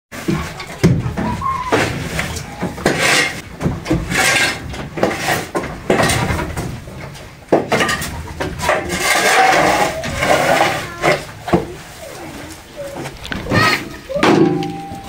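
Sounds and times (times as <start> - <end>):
shovel scraping on concrete: 1.8 - 3.4, 4.0 - 6.2, 8.6 - 11.4.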